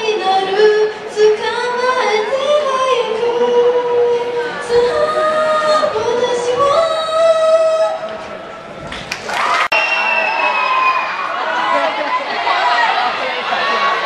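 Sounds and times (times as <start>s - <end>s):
girl singing into microphone: 0.0s - 8.1s.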